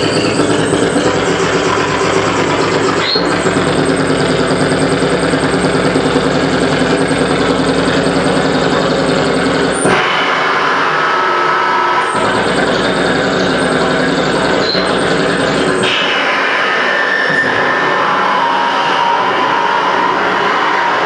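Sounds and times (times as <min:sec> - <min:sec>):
harsh noise wall: 0:00.0 - 0:21.0
low droning pulse: 0:00.0 - 0:21.0.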